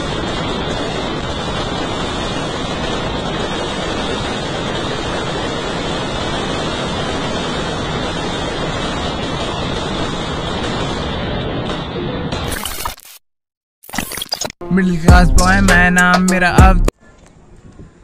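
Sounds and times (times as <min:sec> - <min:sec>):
firecrackers crackling: 0:00.0 - 0:12.9.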